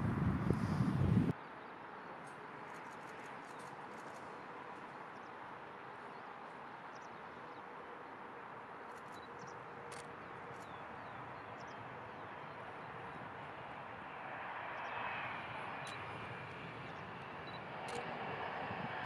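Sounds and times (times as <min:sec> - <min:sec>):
small birds chirping: 0:06.0 - 0:07.7, 0:08.9 - 0:13.3.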